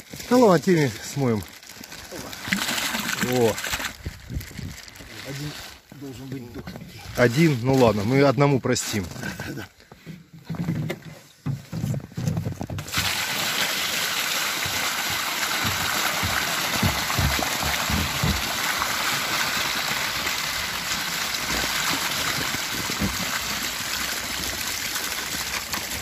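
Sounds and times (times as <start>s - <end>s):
water pouring: 0.0s - 5.6s, 12.8s - 26.0s.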